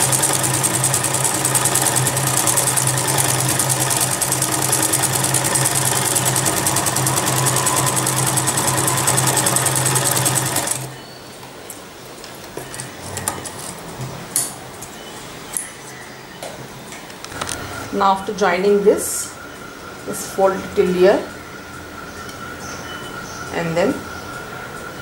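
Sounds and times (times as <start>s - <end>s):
sewing machine stitching: 0.0s - 10.9s.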